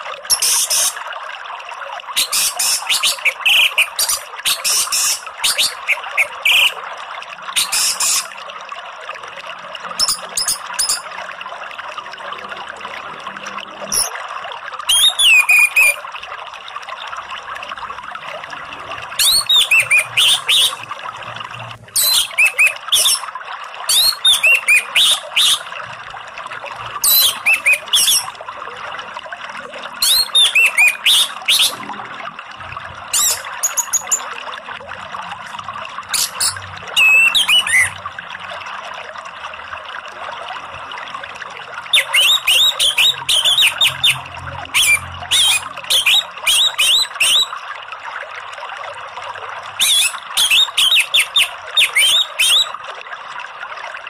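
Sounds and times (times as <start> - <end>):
flowing water rushing: 0.0 - 54.0
thrush chirping song: 2.2 - 6.8, 19.2 - 20.8, 22.0 - 23.2, 23.9 - 25.7, 27.1 - 28.3, 30.0 - 31.8, 36.2 - 38.0, 42.0 - 44.2, 44.8 - 47.5.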